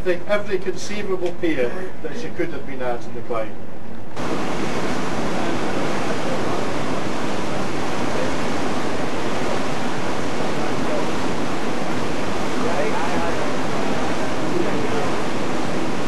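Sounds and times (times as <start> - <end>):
water rushing: 4.2 - 16.0.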